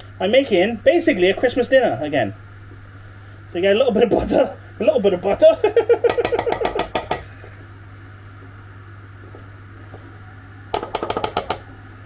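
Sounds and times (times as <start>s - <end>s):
metal spoon tapping a tin: 10.8s - 11.6s.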